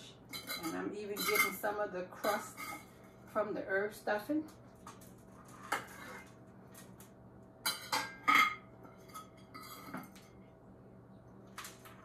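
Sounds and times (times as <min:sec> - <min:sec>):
utensils clinking on a plate: 0:00.3 - 0:02.9, 0:07.6 - 0:10.3.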